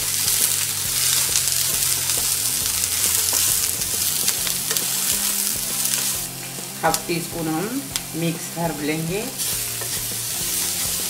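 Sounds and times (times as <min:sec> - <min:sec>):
vegetables sizzling in oil: 0:00.0 - 0:11.0
spatula scraping and tapping pan: 0:00.1 - 0:07.1, 0:09.3 - 0:11.0.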